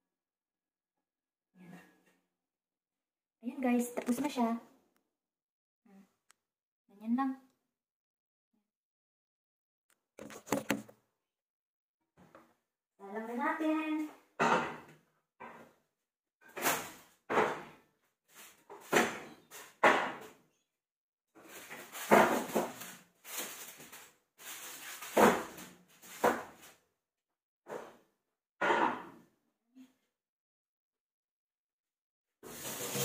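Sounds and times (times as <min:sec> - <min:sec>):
pans scraping on grates: 0:32.5 - 0:33.0.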